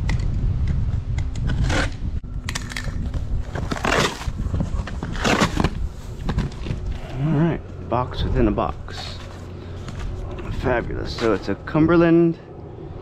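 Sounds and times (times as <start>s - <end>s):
utility knife slitting packing tape: 1.3s - 4.4s
cardboard flaps scraping and rustling: 3.0s - 7.1s.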